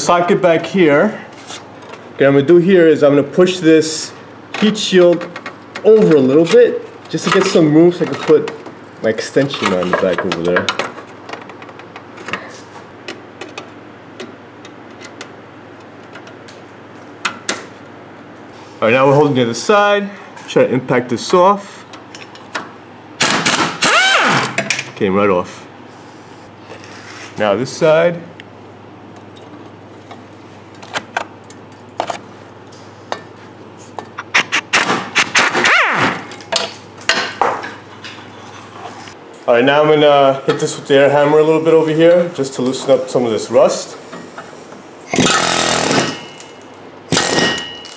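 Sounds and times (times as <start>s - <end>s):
short whine: 34.2s - 36.3s
steady background hiss: 38.8s - 47.9s.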